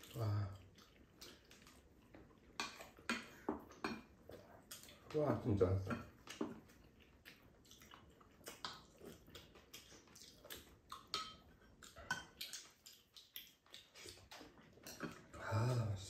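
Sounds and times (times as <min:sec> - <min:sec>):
chewing: 0:00.0 - 0:05.2, 0:05.8 - 0:16.0.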